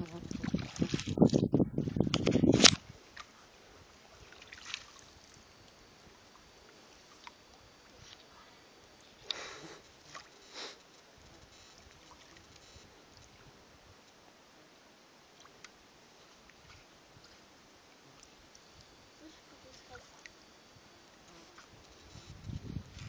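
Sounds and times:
net splashing in pond water: 0:00.0 - 0:01.2, 0:04.0 - 0:05.4, 0:10.0 - 0:10.4
faint steady hiss: 0:00.0 - 0:23.0.

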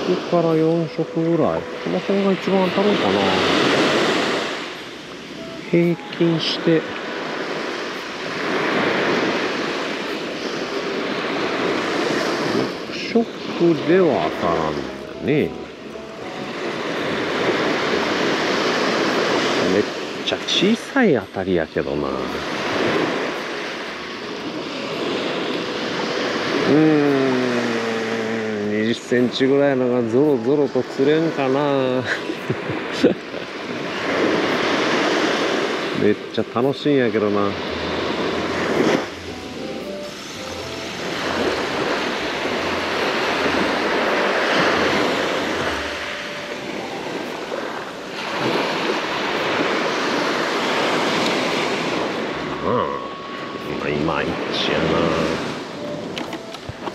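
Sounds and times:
waves breaking on beach: 0:00.0 - 0:56.9
wind on microphone: 0:06.9 - 0:13.9, 0:37.2 - 0:54.5.

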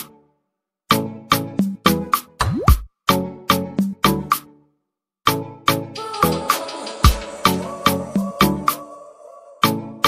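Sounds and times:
background music with sharp beat: 0:00.9 - 0:02.9, 0:05.3 - 0:08.9.

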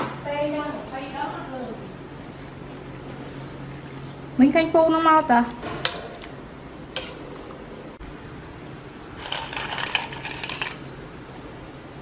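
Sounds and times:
crab pieces clattering on plate: 0:09.2 - 0:10.8.

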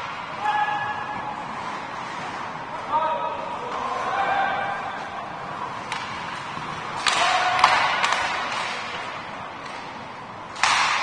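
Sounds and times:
echoing rink noise: 0:00.0 - 0:11.0
hockey sticks clicking: 0:03.6 - 0:11.0
puck banging against boards: 0:05.8 - 0:11.0.

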